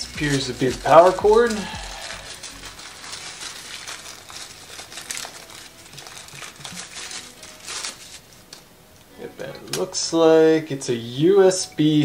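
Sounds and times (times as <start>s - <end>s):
packaging wrap crinkling: 0.0s - 8.7s.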